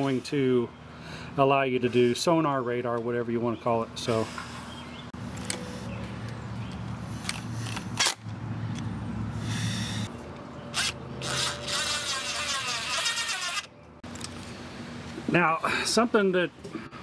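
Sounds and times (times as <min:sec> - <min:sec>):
screwdriver driving screw: 0:10.8 - 0:13.7.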